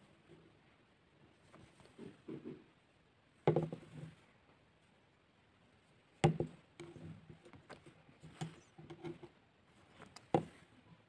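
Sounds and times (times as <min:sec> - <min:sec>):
thread rustling through fabric: 0:05.8 - 0:10.8.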